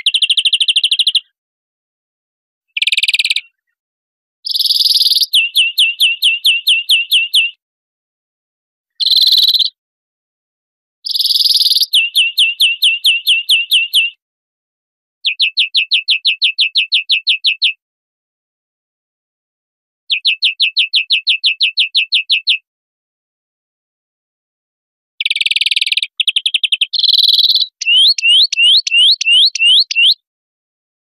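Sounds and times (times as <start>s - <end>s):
bird trill of falling notes: 27.0s - 30.2s.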